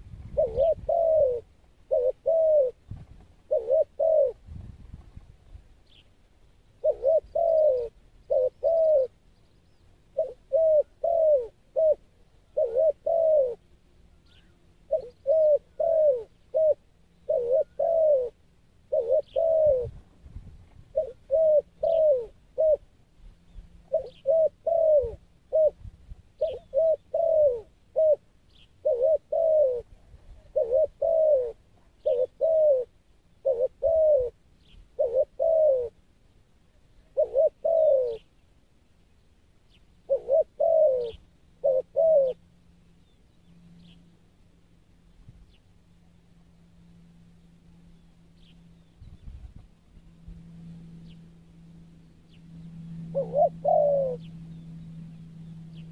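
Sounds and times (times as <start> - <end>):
dove cooing: 0.0 - 4.8, 6.6 - 9.3, 10.0 - 20.2, 20.8 - 36.0, 36.9 - 38.4, 40.0 - 44.0, 52.2 - 55.9
small birds chirping: 5.4 - 44.2, 44.8 - 46.6, 47.2 - 55.9.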